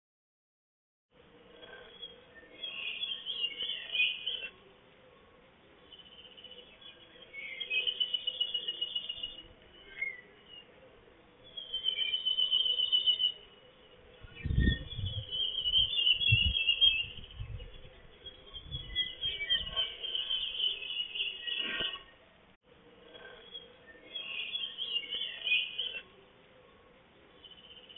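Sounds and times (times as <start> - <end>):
songbird trilling: 14.2 - 22.1.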